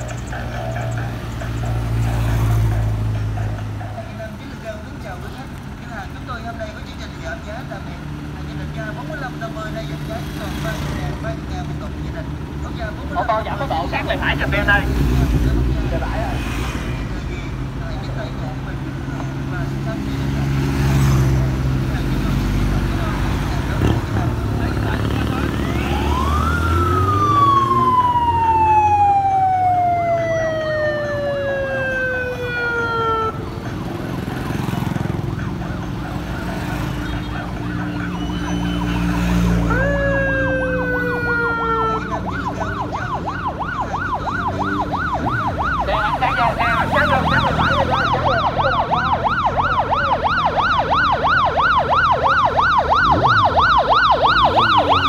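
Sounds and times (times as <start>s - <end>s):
motorbike and car engines: 0.0s - 55.0s
electronic siren wailing and yelping: 25.3s - 55.0s.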